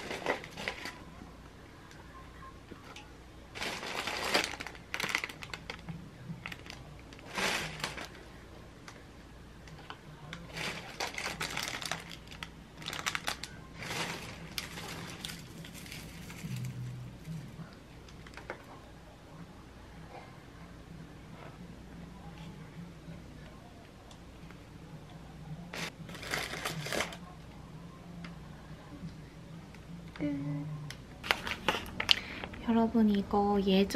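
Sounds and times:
plastic packaging crinkling: 0:00.0 - 0:01.0, 0:03.5 - 0:08.2, 0:10.3 - 0:16.9, 0:25.7 - 0:27.2.

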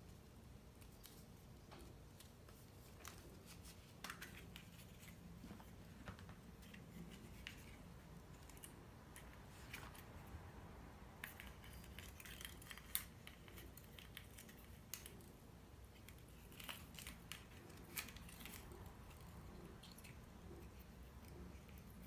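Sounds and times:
low room hum: 0:00.0 - 0:22.0
plastic eggs clicking and rustling: 0:11.2 - 0:22.0.

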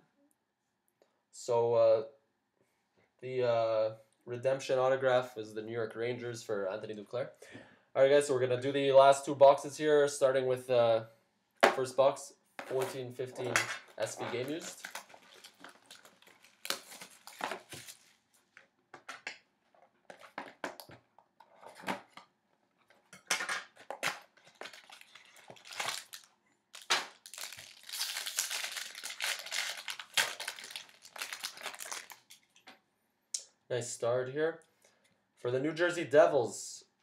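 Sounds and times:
plastic packaging crinkling: 0:13.9 - 0:18.6, 0:23.8 - 0:32.7.

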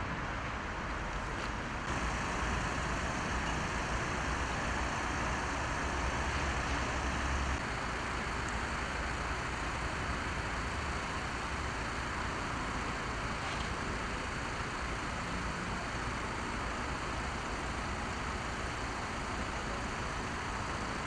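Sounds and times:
road traffic noise: 0:00.0 - 0:10.7
low vehicle engine rumble: 0:01.9 - 0:07.6.

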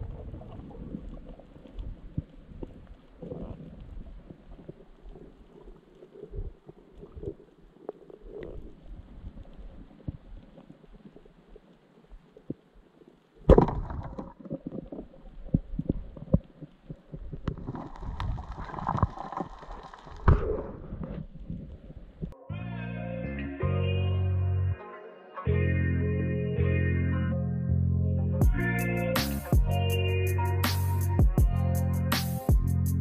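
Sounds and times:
faint underwater clicks: 0:00.0 - 0:22.4.

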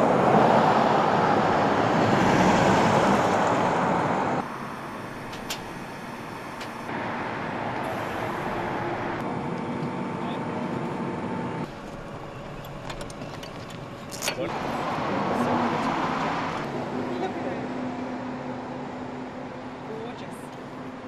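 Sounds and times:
car passing: 0:00.0 - 0:05.1, 0:14.4 - 0:19.5
machine hum: 0:04.0 - 0:15.2.

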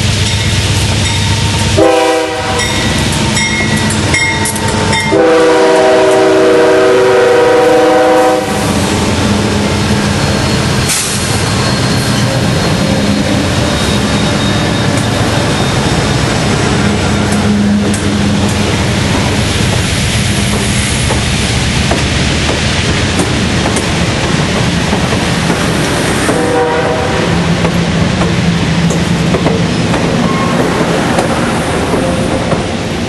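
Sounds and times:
train cars rumbling and clattering: 0:00.0 - 0:33.0
locomotive air horn blasts: 0:01.8 - 0:02.9, 0:04.9 - 0:08.8, 0:26.2 - 0:27.5.

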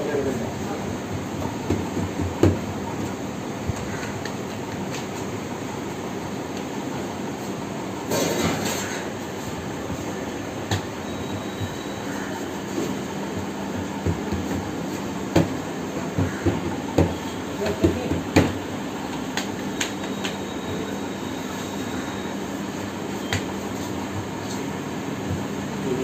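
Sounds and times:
oven roar: 0:08.0 - 0:17.1.

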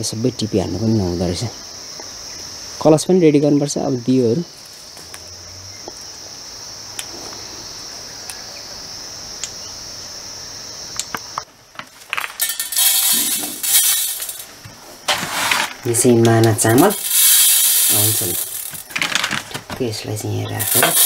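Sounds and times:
crickets chirring: 0:00.0 - 0:21.0
rice grains rustling on metal plate: 0:11.8 - 0:19.5, 0:20.6 - 0:21.0.

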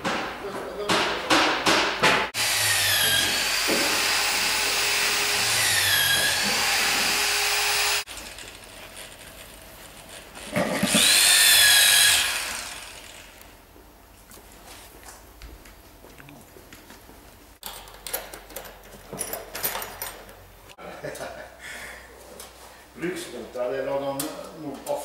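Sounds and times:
sharp knocks: 0:00.0 - 0:02.3
power drill boring into wood: 0:02.4 - 0:08.4, 0:10.7 - 0:13.4.

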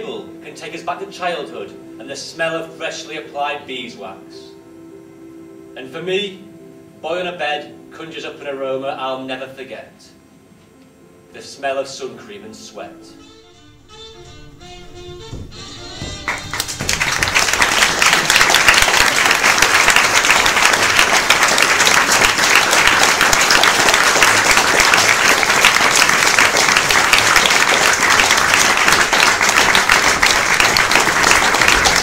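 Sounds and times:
audience applauding: 0:15.5 - 0:32.0.

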